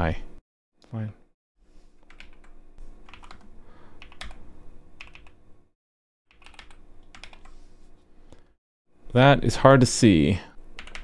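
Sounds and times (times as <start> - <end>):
typing on computer keyboard: 2.0 - 2.5, 3.1 - 4.4, 5.0 - 5.4, 6.3 - 7.5, 10.8 - 11.0.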